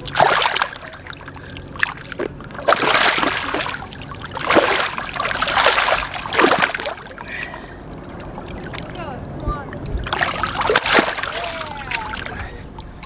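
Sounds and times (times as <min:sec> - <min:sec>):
fish splashing in water: 0:00.0 - 0:08.9, 0:09.7 - 0:13.0.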